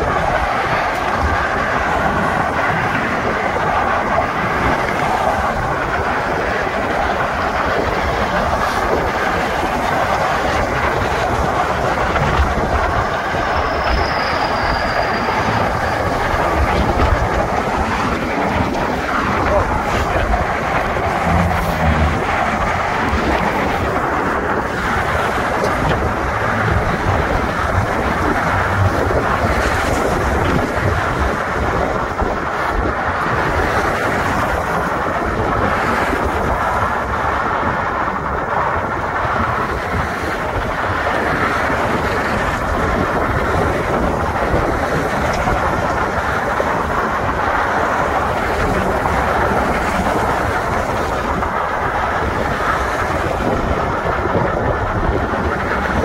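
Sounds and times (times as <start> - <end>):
car traffic: 0.0 - 56.0
wind over microphone: 0.0 - 56.0.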